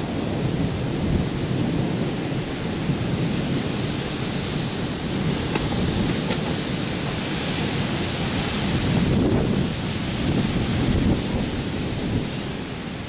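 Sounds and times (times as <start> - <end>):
distant thunder rumbling: 2.7 - 9.2.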